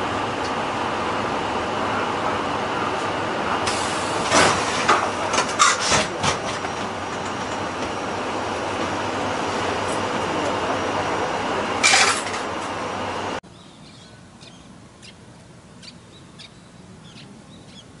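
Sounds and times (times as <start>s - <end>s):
bus cabin noise: 0.0s - 13.4s
bird chirps: 13.5s - 15.2s, 15.8s - 18.0s.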